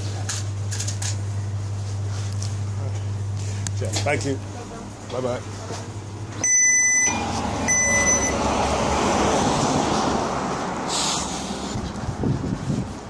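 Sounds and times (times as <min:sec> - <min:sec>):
street traffic noise: 0:00.0 - 0:13.0
shop door electronic beeper: 0:06.4 - 0:08.5
vehicle passing: 0:07.1 - 0:12.9
short hiss: 0:10.9 - 0:11.8.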